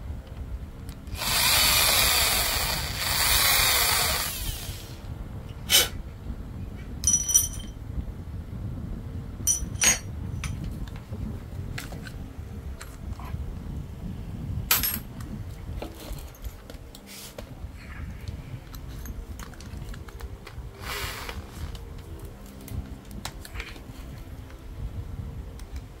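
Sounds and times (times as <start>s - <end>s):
electric drill running: 1.1s - 5.0s
metal parts clinking: 7.0s - 7.8s, 9.5s - 10.6s.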